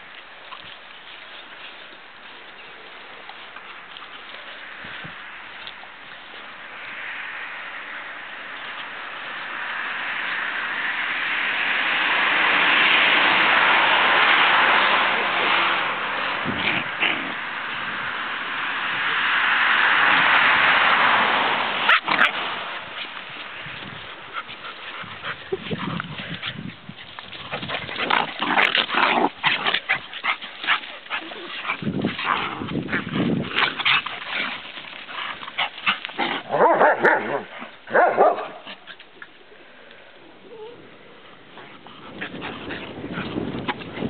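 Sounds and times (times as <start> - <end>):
rush of noise: 6.5 - 38.6
dogs barking and yipping: 21.6 - 39.3.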